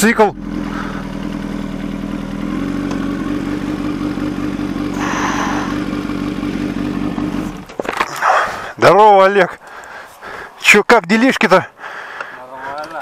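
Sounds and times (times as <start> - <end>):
motorcycle engine at low revs: 0.0 - 8.7.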